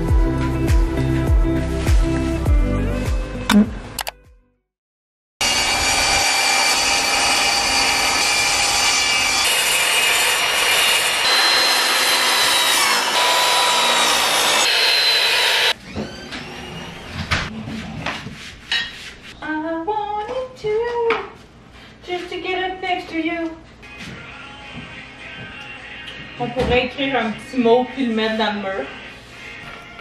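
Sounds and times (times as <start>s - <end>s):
miter saw cutting wood: 5.4s - 15.8s.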